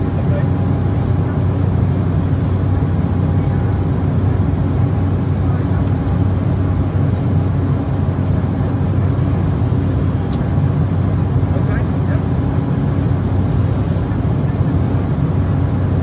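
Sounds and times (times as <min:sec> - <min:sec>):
aircraft cabin rumble: 0:00.0 - 0:16.0.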